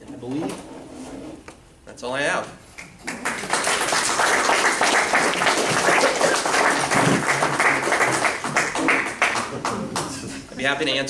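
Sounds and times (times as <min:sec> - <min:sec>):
audience applauding: 0:02.8 - 0:10.5.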